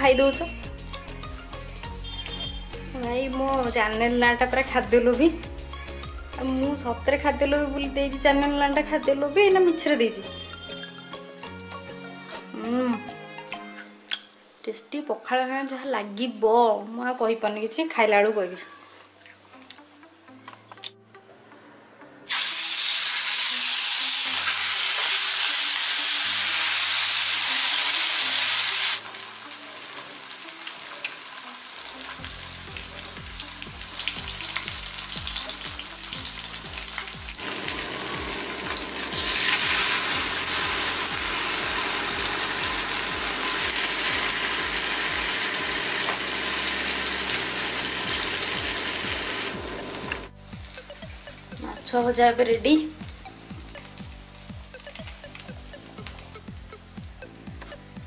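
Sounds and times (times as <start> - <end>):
fish sizzling in hot oil: 22.3 - 52.0, 53.0 - 57.3.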